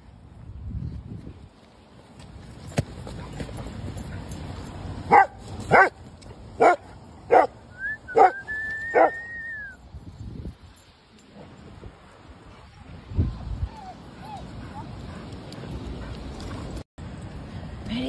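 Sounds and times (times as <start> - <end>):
dog barking: 5.1 - 6.0, 6.6 - 7.6, 8.2 - 8.4.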